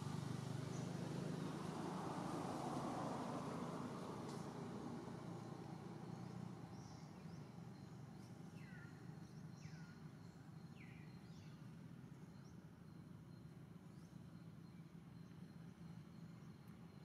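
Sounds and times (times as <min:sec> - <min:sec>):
faint bird chirps: 0:06.2 - 0:17.0.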